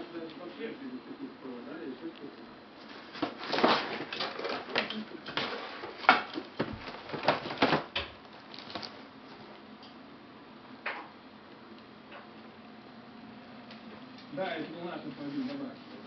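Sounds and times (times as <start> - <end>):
cardboard rustling: 2.8 - 9.5.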